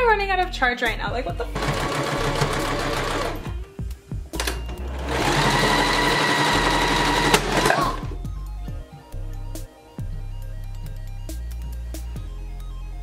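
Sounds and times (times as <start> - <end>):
sewing machine stitching: 1.6 - 3.6, 4.4 - 8.2.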